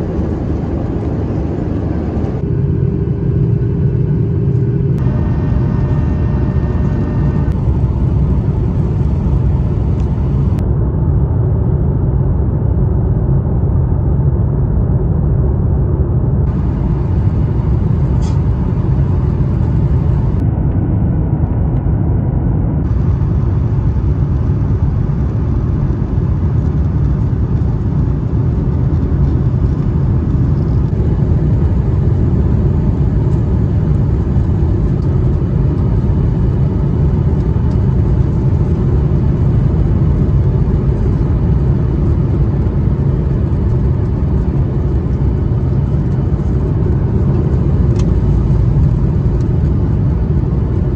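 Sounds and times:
air rushing: 0.0s - 10.6s, 16.4s - 20.5s
low engine rumble: 0.0s - 50.9s.

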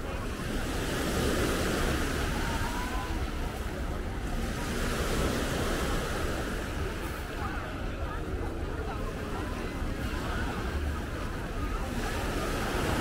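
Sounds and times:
sea waves breaking on shore: 0.0s - 13.0s.

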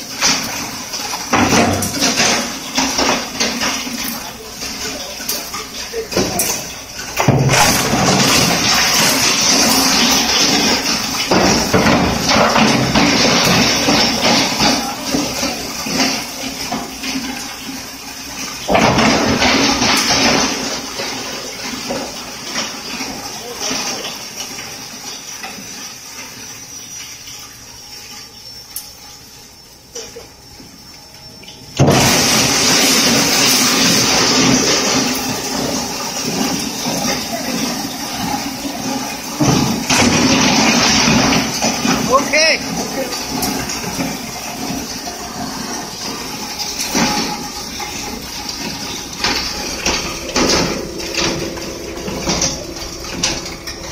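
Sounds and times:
machine high whine: 47.2s - 53.9s.

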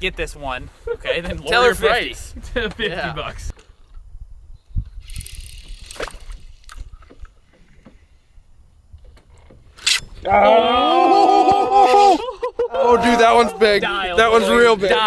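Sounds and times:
man shouting excitedly: 10.3s - 15.0s.

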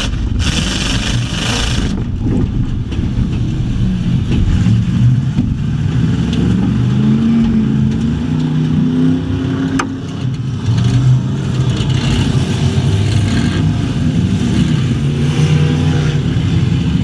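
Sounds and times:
race car engine revving: 0.0s - 2.0s.

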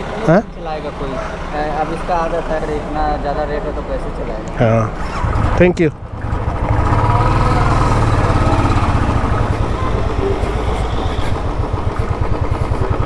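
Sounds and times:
motorcycle engine pulling away: 5.0s - 13.0s.

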